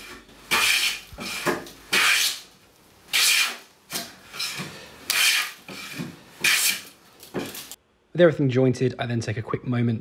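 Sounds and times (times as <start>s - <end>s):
hand plane hissing strokes: 0.0s - 2.4s, 4.3s - 6.9s.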